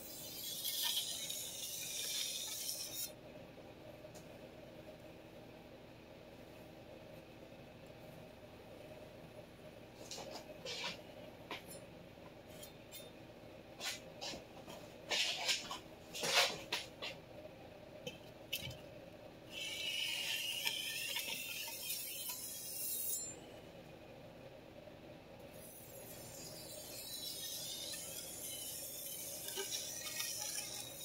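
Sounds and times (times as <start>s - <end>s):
knife scraping on whetstone: 0.1s - 3.1s, 19.6s - 23.3s, 25.7s - 31.0s.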